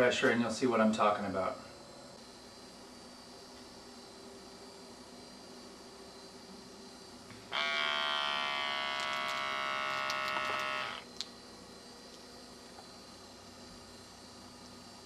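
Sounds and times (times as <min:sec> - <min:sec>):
small air pump buzzing: 0:07.3 - 0:11.3.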